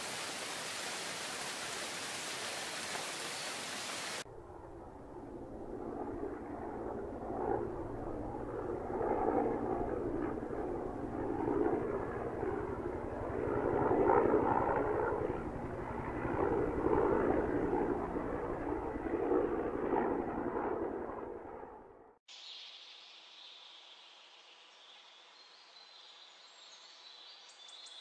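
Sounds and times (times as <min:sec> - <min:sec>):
helicopter engine drone: 0:04.2 - 0:22.0.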